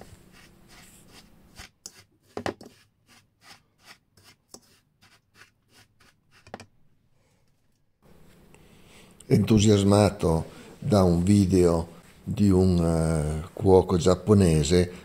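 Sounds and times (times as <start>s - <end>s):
fork scraping through breadcrumbs: 0.3s - 6.4s.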